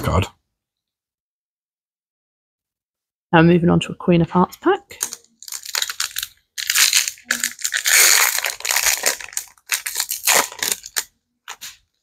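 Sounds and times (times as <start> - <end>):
foil wrapper crinkling: 5.0 - 11.8.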